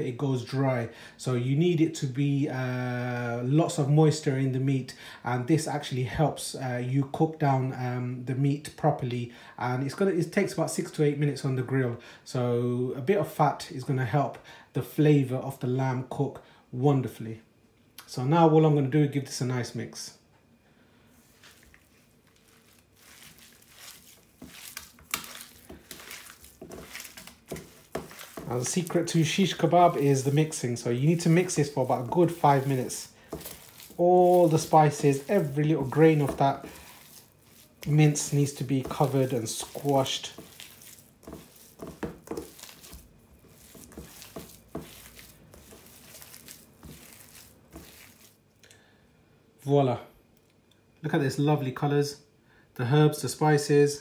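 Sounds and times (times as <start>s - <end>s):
wet squishing of kneaded mince: 21.2s - 48.6s.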